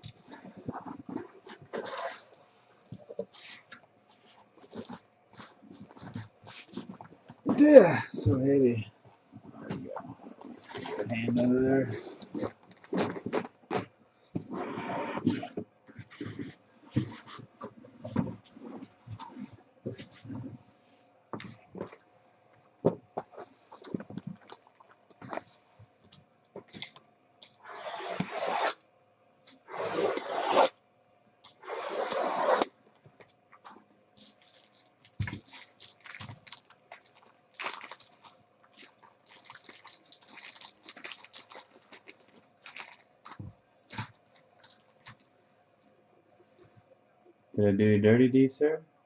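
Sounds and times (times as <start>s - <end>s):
cardboard rubbing on table: 0.2s - 2.4s, 3.1s - 7.0s, 10.0s - 11.2s, 11.9s - 20.4s, 27.6s - 28.8s, 29.6s - 30.7s, 31.5s - 32.7s
cardboard boxes rustling: 9.4s - 14.6s, 34.2s - 45.2s.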